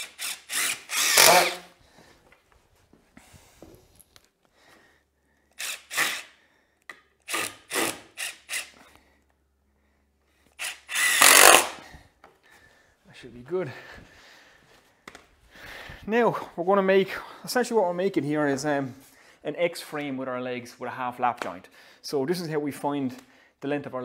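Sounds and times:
cordless drill driving screws: 0.0 - 1.7, 5.6 - 8.9, 10.5 - 11.8.

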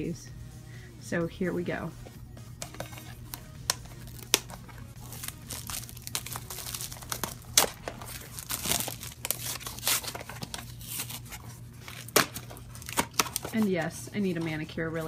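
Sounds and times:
package crinkling and tearing: 3.0 - 13.7.

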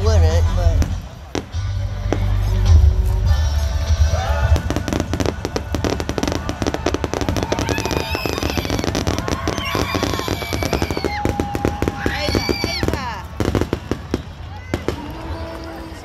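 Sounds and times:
fireworks bangs and crackles: 0.0 - 16.0
deep fireworks booms: 4.1 - 15.9.

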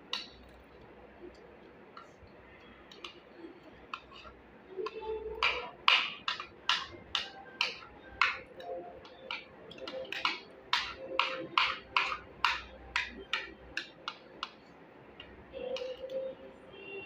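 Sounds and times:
metal spoons scraping plates: 3.8 - 14.6.

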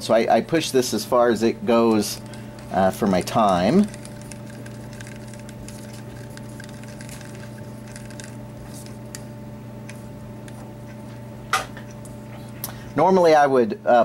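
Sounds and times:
electrical hum: 0.0 - 14.0
stir stick scraping a cup: 1.8 - 9.2.

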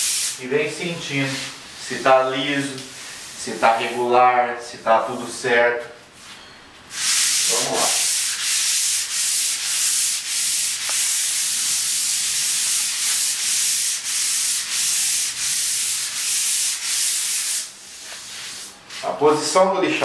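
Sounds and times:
sandpaper rubbing on wall: 0.0 - 0.4, 1.1 - 4.1, 6.9 - 19.2.

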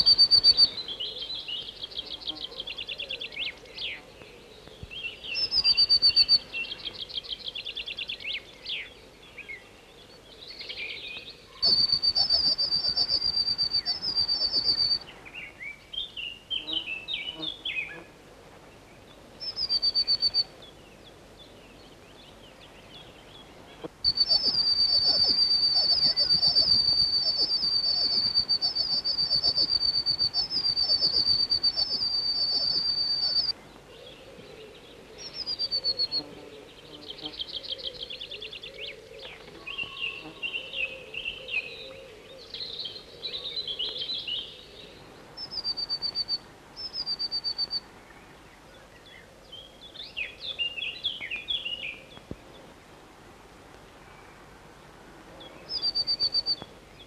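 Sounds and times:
chickadee calls: 0.0 - 0.8, 11.6 - 15.0, 23.8 - 33.6.

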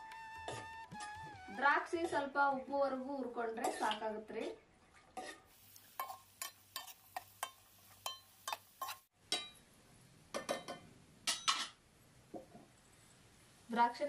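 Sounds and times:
metal spoon clinking on pan: 6.0 - 9.6, 10.3 - 11.8.

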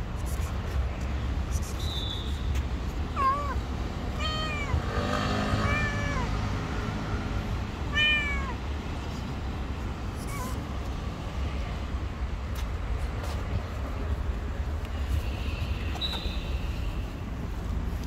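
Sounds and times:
cat meowing: 3.2 - 3.6, 4.2 - 4.8, 5.5 - 6.4, 7.9 - 8.6, 10.2 - 10.6.

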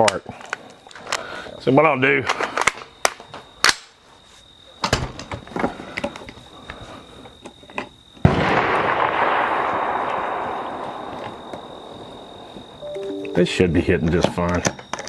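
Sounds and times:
rifle shot: 8.2 - 12.6.

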